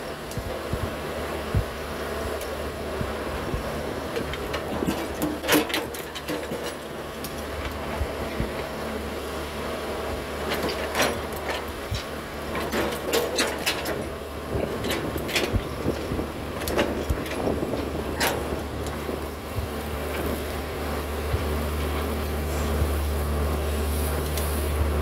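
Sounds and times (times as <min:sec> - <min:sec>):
excavator diesel engine running: 0:00.0 - 0:25.0
excavator bucket clanks and knocks: 0:04.1 - 0:08.8, 0:10.4 - 0:20.4.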